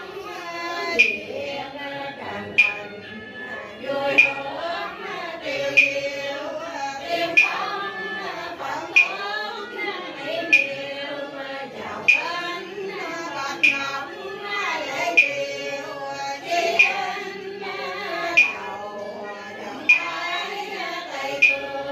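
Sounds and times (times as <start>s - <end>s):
voices chanting a prayer: 0.0s - 21.9s
sharp struck beat: 0.9s - 1.3s.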